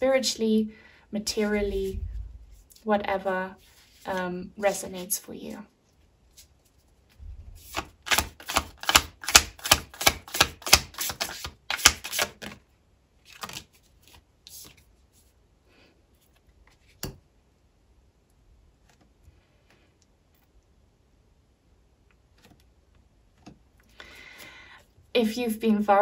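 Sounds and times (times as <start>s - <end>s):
cards snapping: 7.7s - 12.6s.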